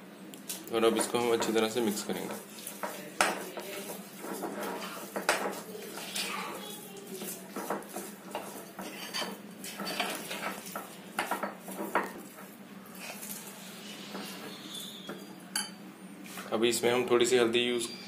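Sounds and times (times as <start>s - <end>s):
metal spoon stirring batter: 0.5s - 15.7s
spoon clinking against glass: 15.5s - 15.8s.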